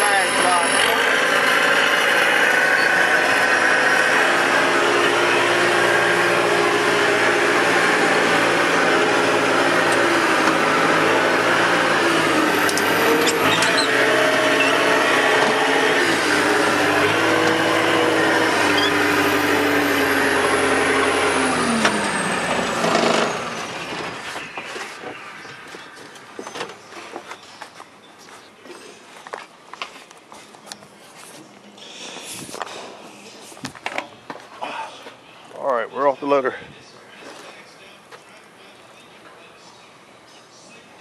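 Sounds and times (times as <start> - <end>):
wheel loader engine running: 0.0 - 27.4.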